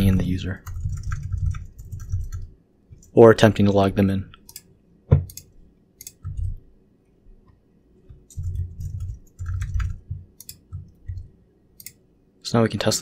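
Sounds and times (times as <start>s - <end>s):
keyboard keys clicking: 0.6s - 2.4s, 8.3s - 12.0s.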